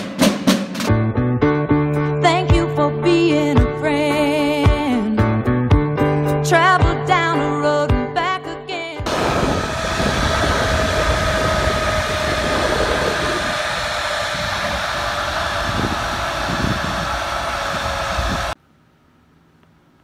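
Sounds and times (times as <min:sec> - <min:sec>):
cable car machinery running: 0:09.1 - 0:18.6
wind rumbling on microphone: 0:09.1 - 0:18.6
faint held whine: 0:09.1 - 0:20.0.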